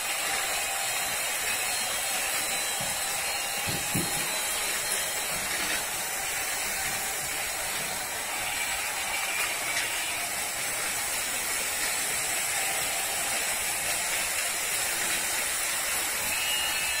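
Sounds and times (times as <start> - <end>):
toy train motors whirring: 0.0 - 17.0
high hiss: 8.4 - 17.0.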